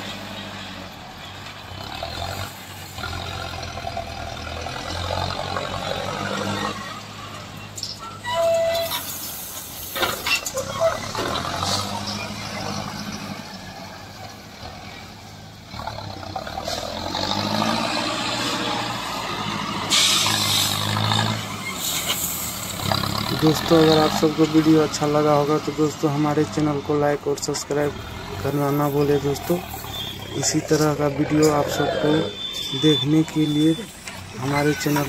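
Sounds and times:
tractor diesel engine under load: 0:00.0 - 0:35.0
gravel scraping: 0:19.6 - 0:35.0.

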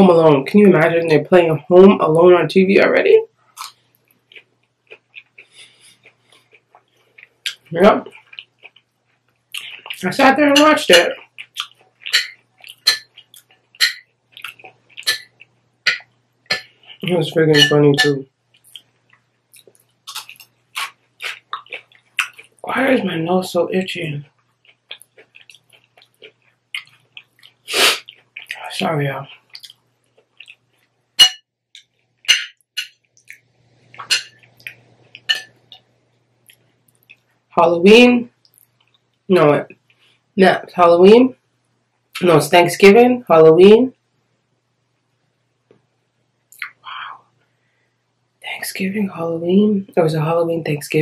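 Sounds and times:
chewing: 0:03.4 - 0:10.0, 0:11.1 - 0:22.6, 0:24.2 - 0:31.0, 0:31.8 - 0:37.4
fork clinking on glass bowl: 0:12.0 - 0:13.2, 0:13.8 - 0:14.1, 0:15.0 - 0:16.7, 0:17.5 - 0:18.2, 0:31.2 - 0:31.5, 0:32.3 - 0:33.0, 0:34.0 - 0:34.5, 0:35.2 - 0:35.6.

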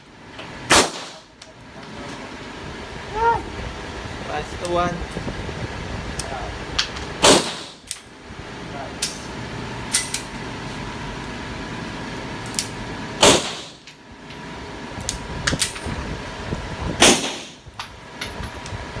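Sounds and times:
air conditioning hum: 0:00.0 - 0:19.0
gunshots echoing indoors: 0:00.7 - 0:01.3, 0:13.2 - 0:13.8.

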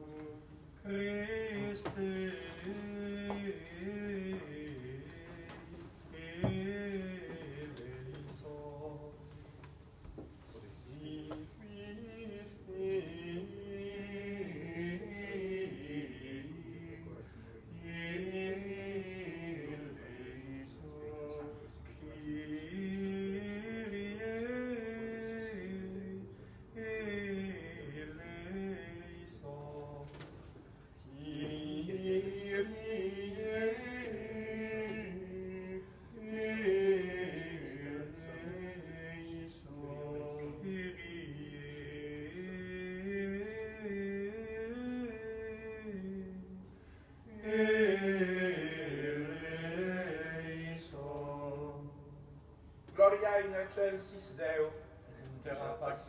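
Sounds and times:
chant singing: 0:00.0 - 0:09.7, 0:10.6 - 0:30.4, 0:31.0 - 0:46.6, 0:47.3 - 0:52.2.

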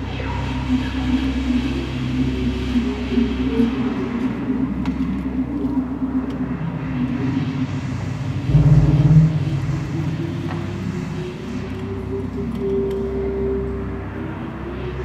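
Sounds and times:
electronic synthesizer drone: 0:00.0 - 0:15.0
noisy engine-like synth texture: 0:00.0 - 0:15.0.

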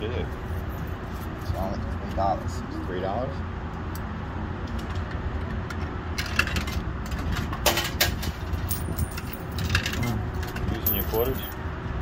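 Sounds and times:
low traffic rumble: 0:00.0 - 0:12.0
coins clinking through coin mechanism: 0:08.6 - 0:11.6.

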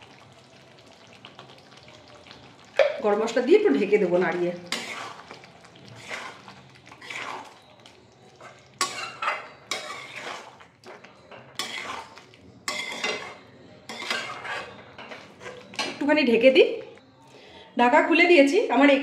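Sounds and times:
metal spatula scraping a metal pan: 0:03.8 - 0:07.6, 0:08.4 - 0:16.0.

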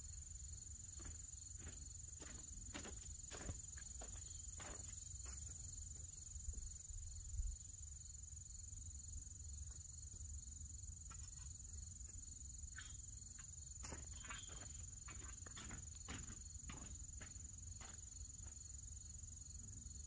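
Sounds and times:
crickets chirping: 0:00.0 - 0:20.0
insect drone: 0:00.0 - 0:20.0
footsteps on plastic tarp: 0:01.0 - 0:05.6, 0:13.8 - 0:18.1.

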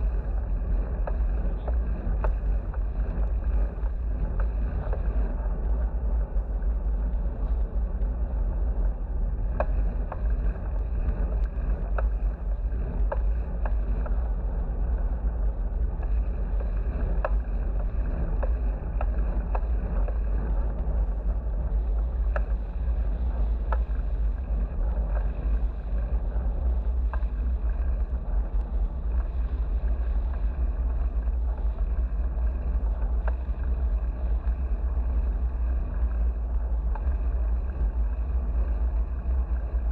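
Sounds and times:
wind rumbling on microphone: 0:00.0 - 0:39.9
faint clicks: 0:16.0 - 0:39.9.

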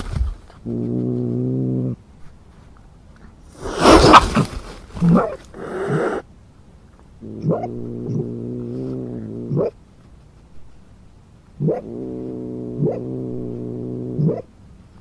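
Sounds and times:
cat growling: 0:03.5 - 0:06.2, 0:07.2 - 0:09.8, 0:11.6 - 0:14.5
cat hissing and snarling: 0:03.5 - 0:06.3.

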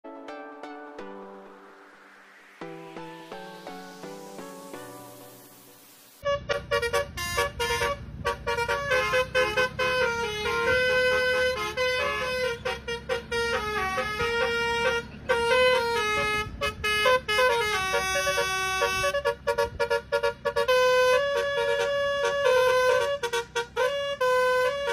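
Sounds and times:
traffic: 0:01.0 - 0:24.9
low rumble of bus: 0:02.7 - 0:24.9
bus horn playing fast melody: 0:06.2 - 0:24.9.

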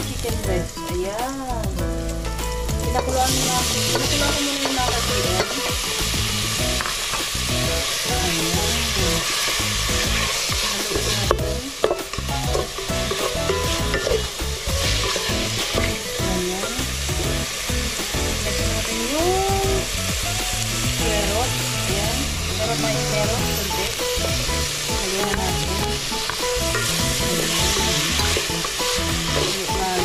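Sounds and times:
meat sizzling in a pot: 0:00.0 - 0:30.0
wooden spatula stirring: 0:09.2 - 0:16.0.

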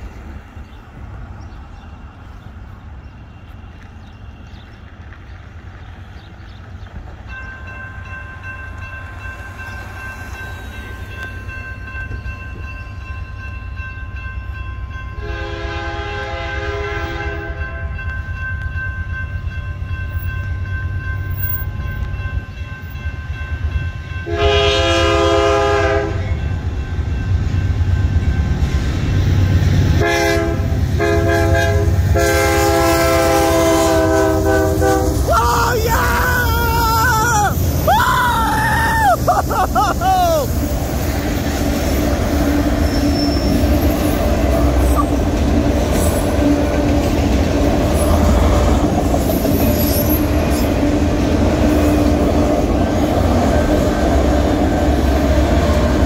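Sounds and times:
train rumble: 0:00.0 - 0:56.0
crossing signal bell ringing: 0:07.2 - 0:15.6, 0:17.3 - 0:29.2
train horn blasts: 0:15.1 - 0:18.0, 0:24.2 - 0:26.5, 0:30.0 - 0:35.3.

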